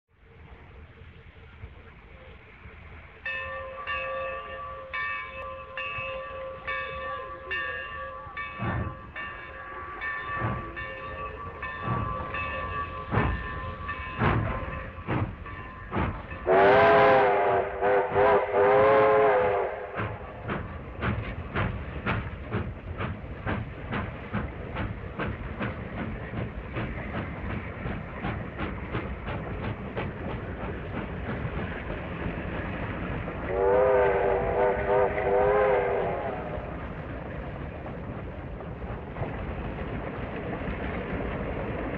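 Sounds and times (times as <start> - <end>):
train wheels rhythm: 0.2 - 41.9
locomotive bell ringing: 3.2 - 17.8
train whistle blowing: 16.4 - 20.3, 33.5 - 36.6.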